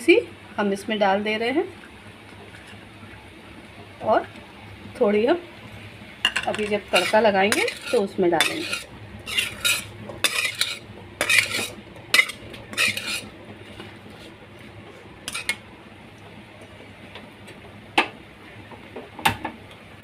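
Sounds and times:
metal spoon scraping a pan: 6.3s - 14.3s, 15.3s - 15.6s.

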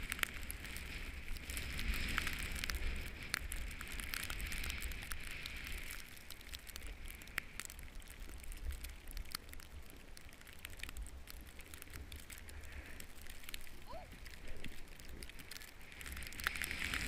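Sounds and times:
wind rumble on microphone: 0.0s - 17.0s
snowboard scraping over snow: 0.3s - 3.8s, 16.1s - 17.0s.

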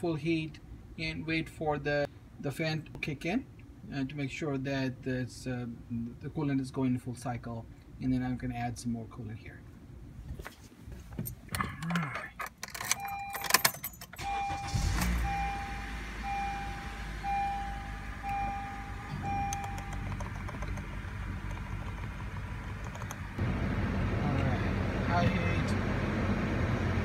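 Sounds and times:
keys clicking and rattling: 11.3s - 14.2s, 19.5s - 23.2s
car engine starting and idling: 12.7s - 27.0s
dashboard warning chime: 12.8s - 20.3s.

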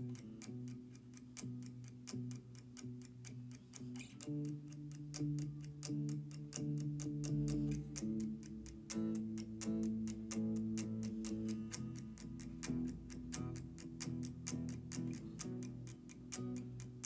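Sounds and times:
ticking beat: 0.0s - 17.0s.

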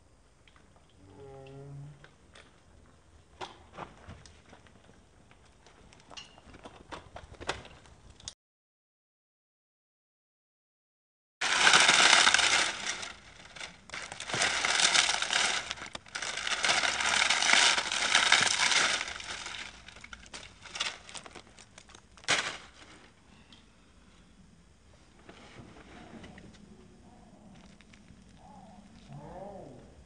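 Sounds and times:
gritty crunching and scraping: 11.4s - 23.2s.

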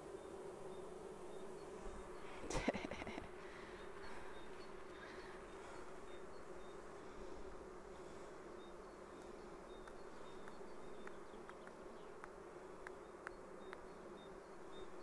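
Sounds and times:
honeybees buzzing: 0.0s - 15.0s
light ticks: 9.8s - 13.9s.

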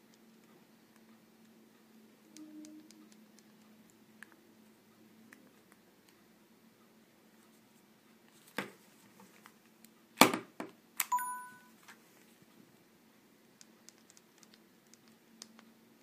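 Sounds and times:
short electronic beep: 11.1s - 11.8s.

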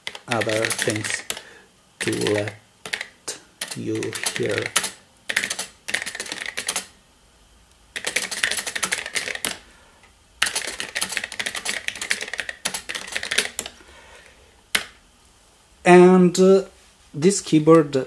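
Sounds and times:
computer keyboard key clicks: 0.0s - 1.4s, 2.0s - 6.9s, 8.0s - 9.6s, 10.4s - 13.8s.

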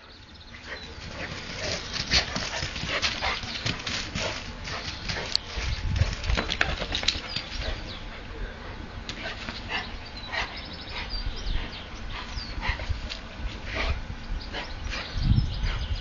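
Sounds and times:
dogs play-fighting: 0.6s - 8.3s.

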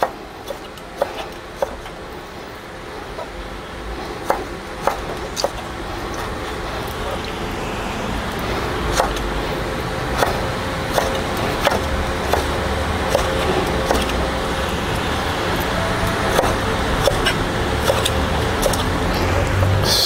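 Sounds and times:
knife chopping on wooden board: 10.2s - 14.1s.

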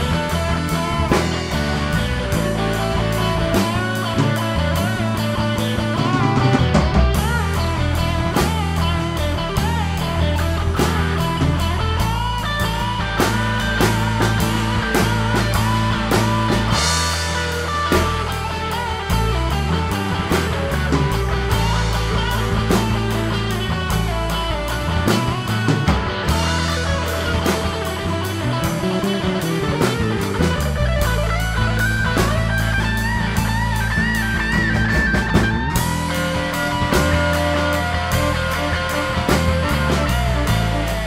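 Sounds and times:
drum kit steady beat: 0.0s - 41.0s
electric guitar bending notes: 0.0s - 41.0s
sustained bass notes: 0.0s - 41.0s.

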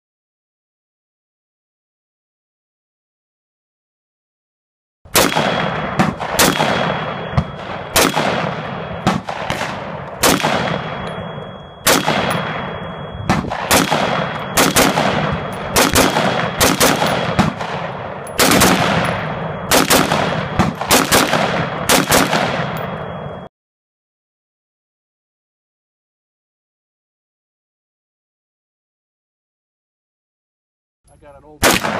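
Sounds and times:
rifle shots with echo: 5.1s - 23.5s, 31.6s - 31.9s.

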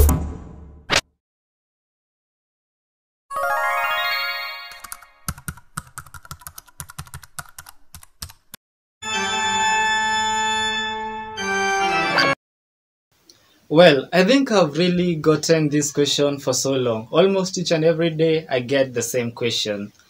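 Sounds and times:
rising chime: 3.3s - 4.8s, 9.0s - 12.4s
electronic organ chord: 9.0s - 12.4s.

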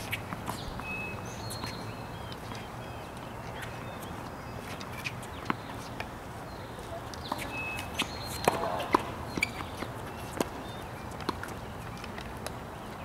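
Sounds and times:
tennis balls popping: 7.2s - 12.6s.

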